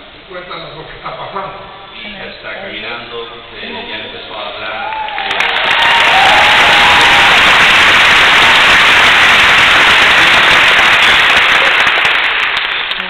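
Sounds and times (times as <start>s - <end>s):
crowd applauding: 4.8s - 13.0s
hands clapping close by: 7.4s - 13.0s.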